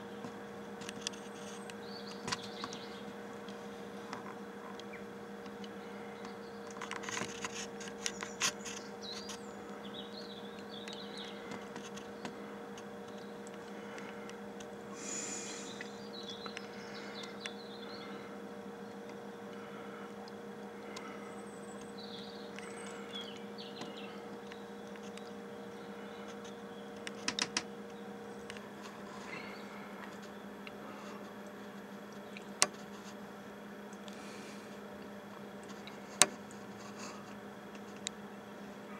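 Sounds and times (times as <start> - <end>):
small birds chirping: 0.0 - 31.5
steady low hum: 0.0 - 38.9
sharp clicks and knocks: 27.0 - 27.7.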